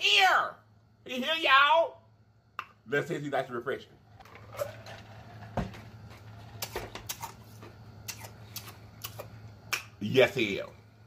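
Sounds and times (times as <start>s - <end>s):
wet mouth clicks: 8.0s - 9.9s.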